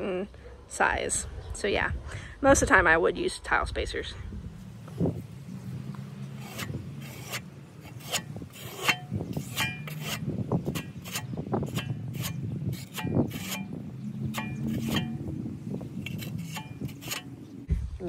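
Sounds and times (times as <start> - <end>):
metal trowel scraping plywood: 6.1 - 17.6.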